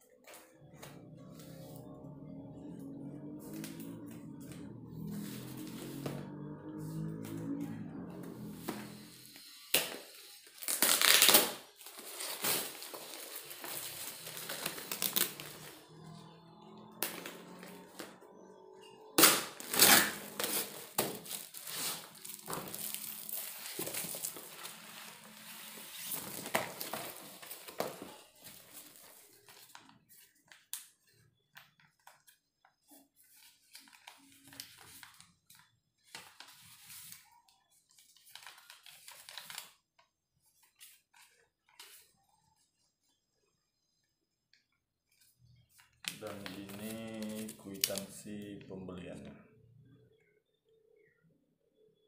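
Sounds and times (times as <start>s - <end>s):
scissors cutting packaging: 8.2s - 15.8s, 19.2s - 29.5s
packaging tearing and crinkling: 10.5s - 15.8s, 19.2s - 28.1s
paper rustling: 19.6s - 30.6s, 33.2s - 39.8s, 45.7s - 48.1s.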